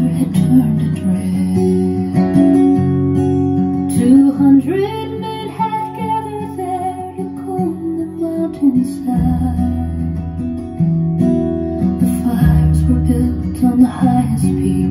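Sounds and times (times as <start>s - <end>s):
folk acoustic guitar music: 0.0s - 14.9s.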